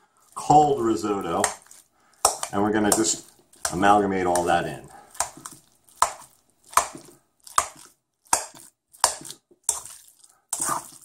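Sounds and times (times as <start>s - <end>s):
fork scraping ceramic bowl: 8.4s - 11.0s.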